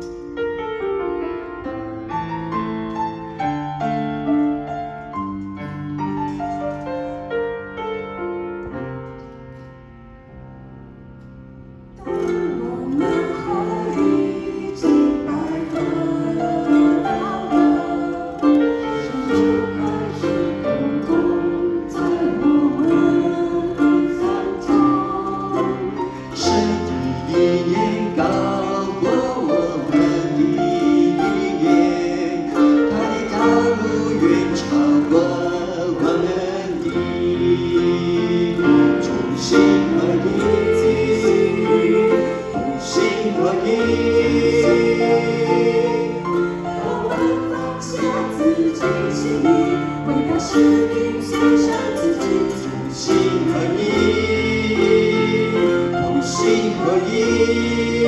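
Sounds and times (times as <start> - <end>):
keyboard: 0.0 - 58.0
group singing in harmony: 12.0 - 58.0.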